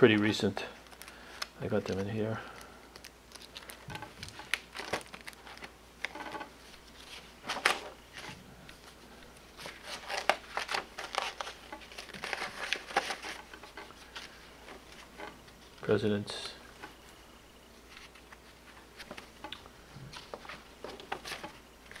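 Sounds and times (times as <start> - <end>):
plastic album pages rustling: 0.1 - 2.2, 2.9 - 16.0, 17.8 - 22.0.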